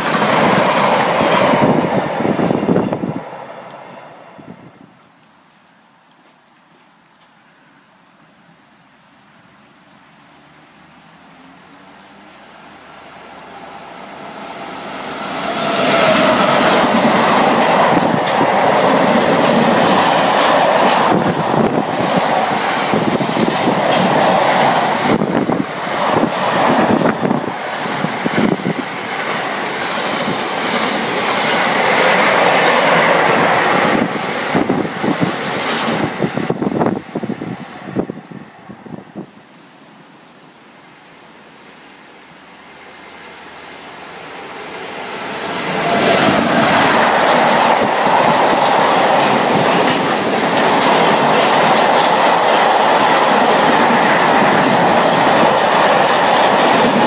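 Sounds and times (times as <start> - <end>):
freight train passing: 0.0 - 5.1, 9.5 - 41.0, 41.6 - 57.0
wheels clattering on rails: 15.5 - 37.0, 45.7 - 57.0.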